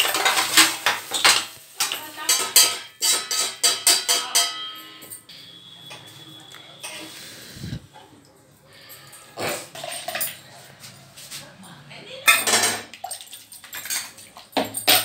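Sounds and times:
spoon clinking in a metal pot: 0.0 - 7.1, 12.2 - 15.0.

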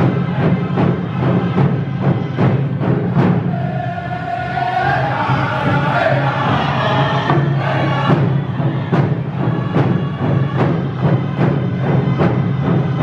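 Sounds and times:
hand drums beating: 0.0 - 3.5
people singing: 0.0 - 13.0.

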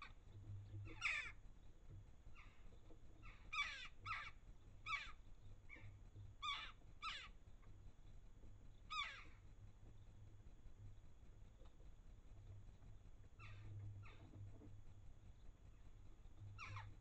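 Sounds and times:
jackdaws calling harshly: 0.8 - 1.4, 3.2 - 7.4, 8.9 - 9.4, 16.6 - 17.0.

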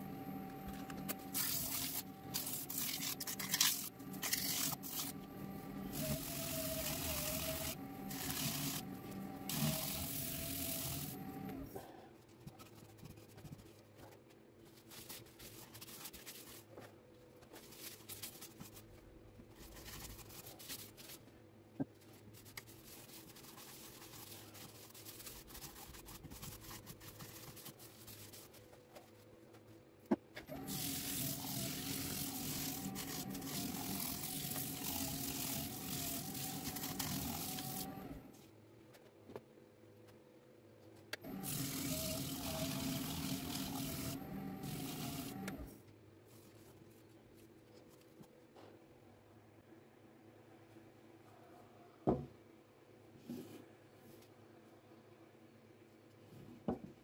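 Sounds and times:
wood lathe whine: 0.7 - 11.8, 41.3 - 45.7.

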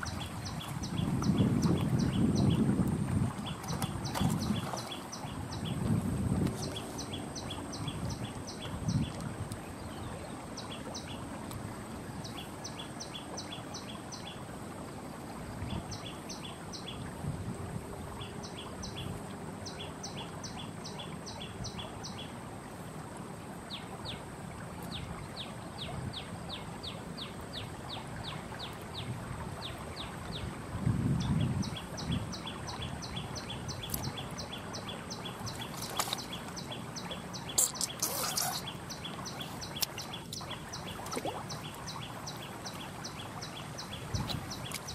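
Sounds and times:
outdoor ambience: 32.5 - 44.9
small bird chirping: 37.3 - 41.6.

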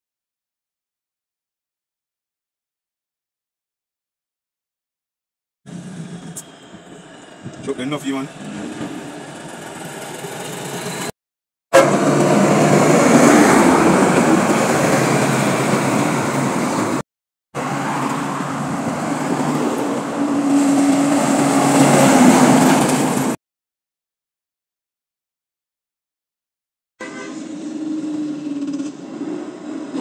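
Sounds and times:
diesel truck engines: 5.7 - 11.2, 11.8 - 17.0, 17.6 - 23.4, 27.1 - 30.0.

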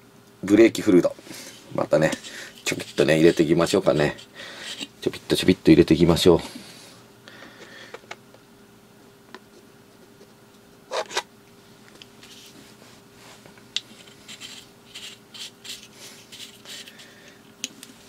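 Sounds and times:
faint steady hum: 0.0 - 18.0
light scratching and rubbing: 1.3 - 5.2, 12.2 - 17.1.

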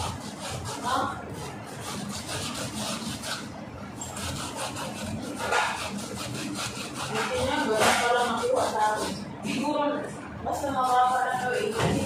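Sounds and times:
root rasping on metal grater: 0.0 - 9.2.

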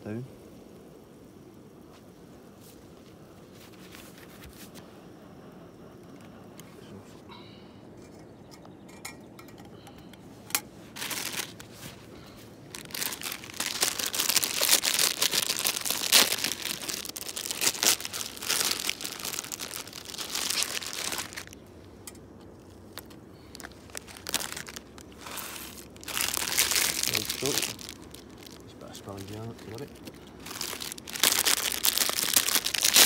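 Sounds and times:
plastic packet crinkling and tearing: 11.0 - 21.6, 22.5 - 33.0.

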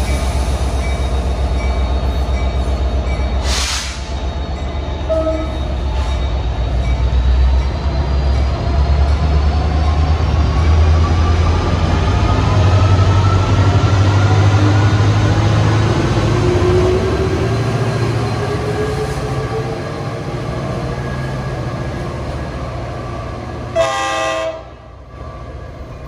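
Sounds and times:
train engine rumble: 0.0 - 26.0
air hiss: 3.4 - 4.1.

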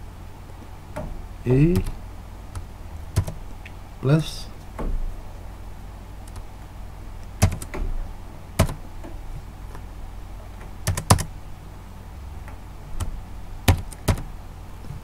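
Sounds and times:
faint low hum: 0.0 - 15.0
keyboard keys clicking: 1.7 - 3.4, 7.2 - 7.8, 8.6 - 8.8, 10.6 - 11.3, 13.7 - 14.3.

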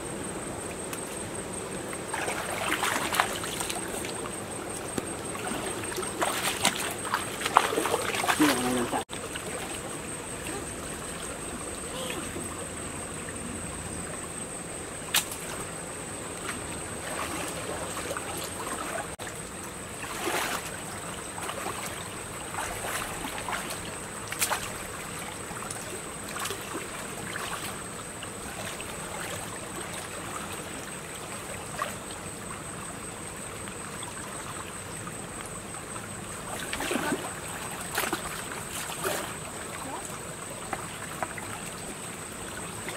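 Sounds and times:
water splashing around wading legs: 1.9 - 12.2, 16.4 - 19.2, 19.9 - 32.2, 35.9 - 42.9.

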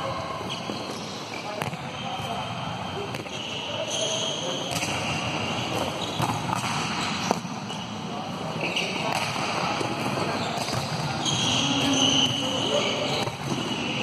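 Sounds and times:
volleyballs struck and bouncing: 1.5 - 2.4, 3.0 - 3.4, 4.6 - 7.8, 8.9 - 14.0.

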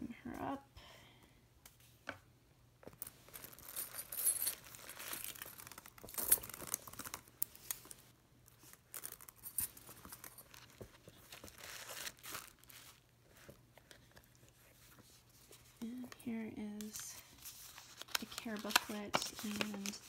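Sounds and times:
tissue paper rustling: 3.3 - 16.1, 16.8 - 20.0.

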